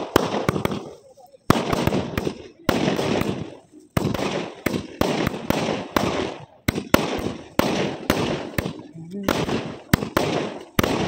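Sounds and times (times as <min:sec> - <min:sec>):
fireworks bangs: 0:00.0 - 0:11.0
fireworks crackling: 0:00.0 - 0:11.0.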